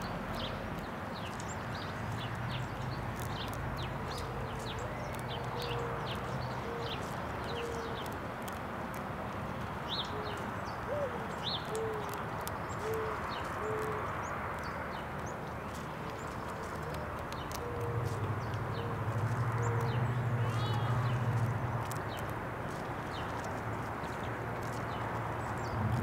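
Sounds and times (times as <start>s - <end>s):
small birds chirping: 0.0s - 26.0s
dove cooing: 4.2s - 8.0s, 10.1s - 12.2s, 12.8s - 14.0s, 16.6s - 21.1s.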